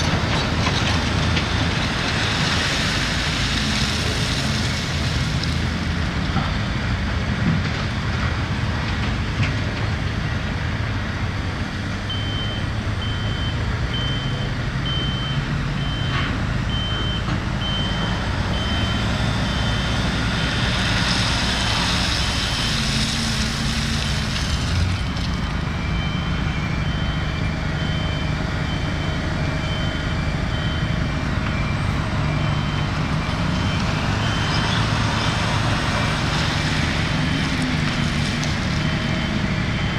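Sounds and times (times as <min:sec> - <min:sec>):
diesel machinery engine running: 0:00.0 - 0:39.9
reversing alarm beeping: 0:12.0 - 0:20.5, 0:25.6 - 0:35.1, 0:38.6 - 0:39.9
lower-pitched reversing alarm: 0:25.7 - 0:34.7.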